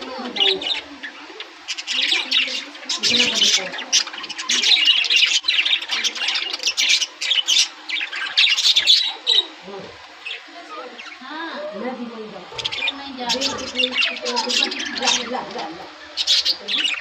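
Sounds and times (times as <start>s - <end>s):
budgerigars chirping and chattering: 0.0s - 17.0s.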